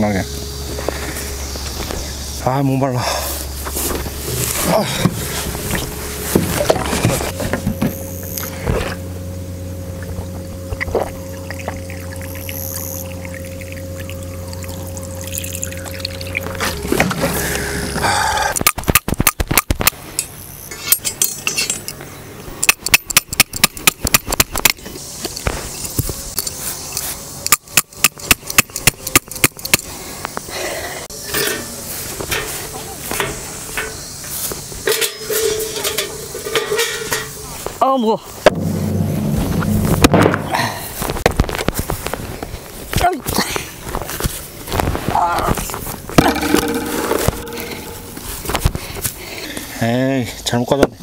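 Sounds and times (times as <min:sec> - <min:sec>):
sharp clicks and knocks on metal stand: 0:22.6 - 0:24.8, 0:27.5 - 0:29.9.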